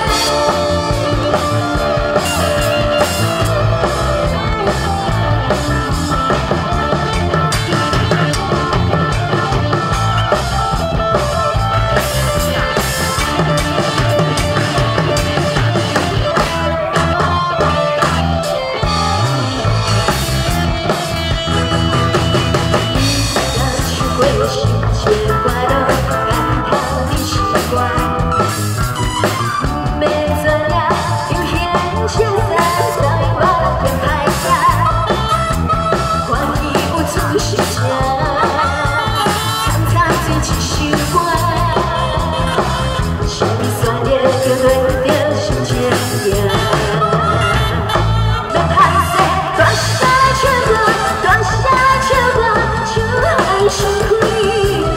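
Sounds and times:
band music with drums and guitar: 0.0 - 54.9
woman singing into a microphone: 22.9 - 28.7, 29.6 - 54.9.

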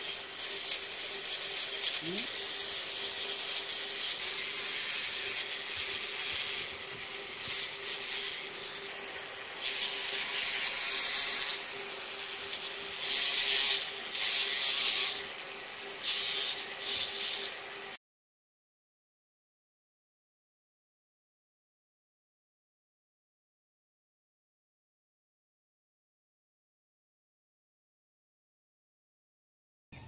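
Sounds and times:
tool scratching wood: 0.0 - 18.0.

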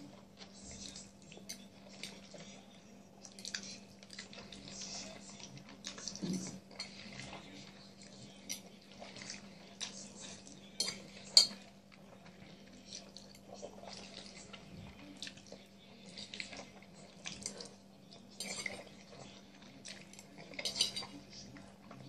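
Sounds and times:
metal fork clinking on plate: 20.6 - 21.1.

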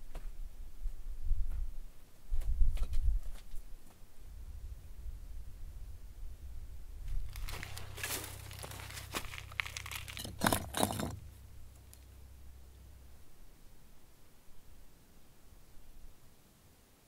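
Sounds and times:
stones grating and crunching: 7.1 - 11.3.

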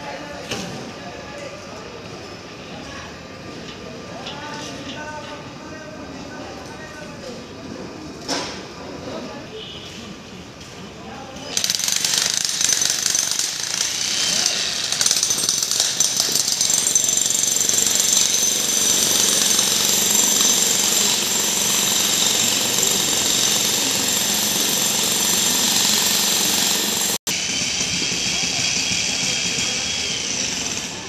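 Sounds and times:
jackhammer hammering: 11.6 - 31.0.

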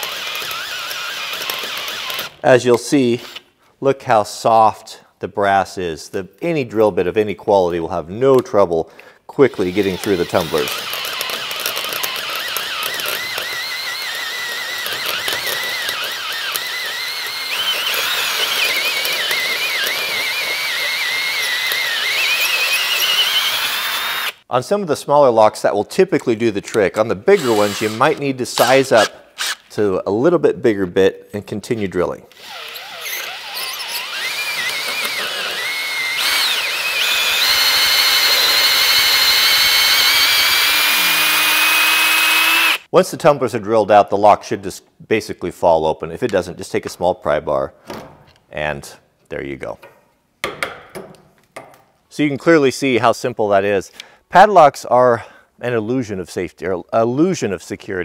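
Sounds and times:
drill bit squealing in metal: 0.0 - 2.4, 9.6 - 24.4, 27.3 - 29.6, 32.3 - 42.8.

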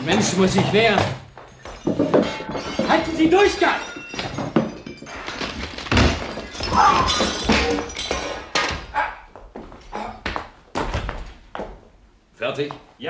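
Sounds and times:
glass breaking and shattering: 0.0 - 9.0.

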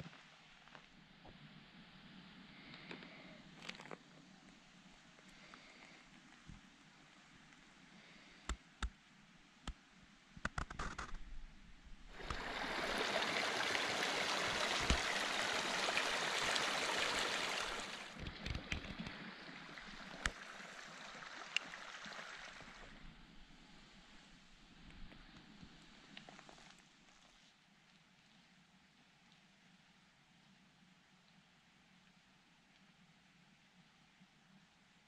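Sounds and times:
creek splashing over rocks: 12.1 - 23.0.

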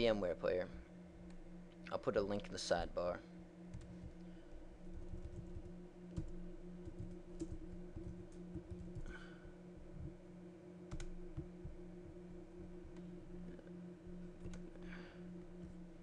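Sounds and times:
steady low hum: 0.0 - 16.0
keyboard keystrokes: 5.1 - 9.1, 10.9 - 11.5.

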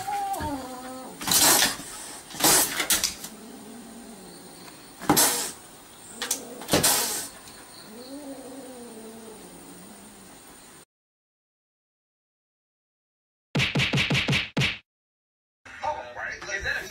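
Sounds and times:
cat growling yowl: 0.0 - 10.4
cat hissing: 0.0 - 10.4.

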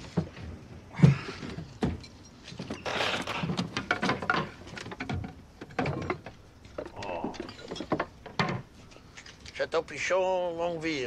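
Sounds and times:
glass bottles clinking together: 6.9 - 8.6.

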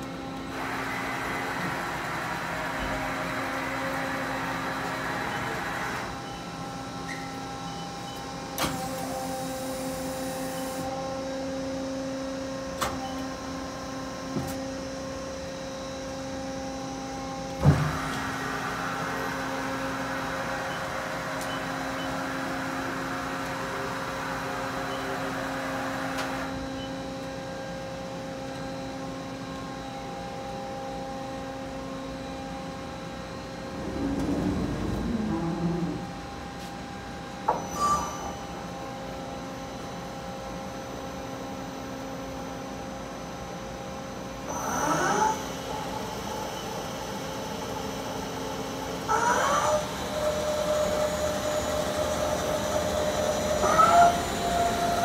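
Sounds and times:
lathe machine hum: 13.4 - 26.6, 44.2 - 55.0.

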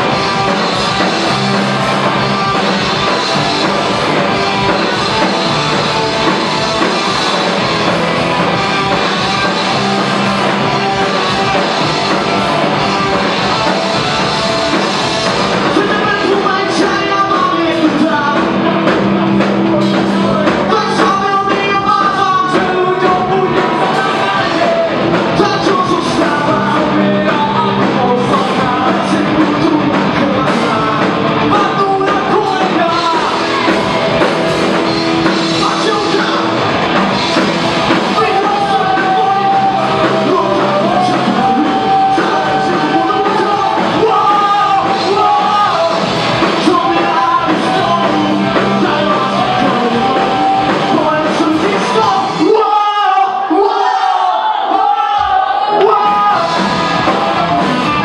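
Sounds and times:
electric guitars: 0.0 - 52.8, 55.3 - 58.0
drums: 0.0 - 58.0
person singing: 8.5 - 36.6, 37.9 - 54.1, 54.7 - 58.0.

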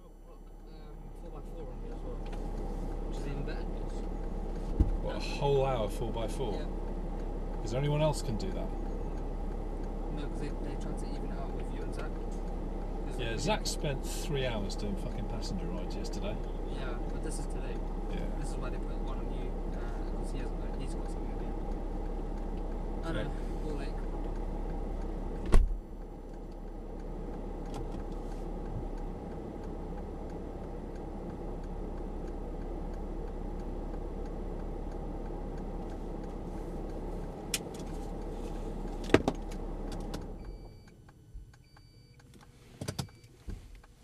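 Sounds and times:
car engine idling hum: 0.0 - 44.0
sharp clicks: 26.0 - 38.3.

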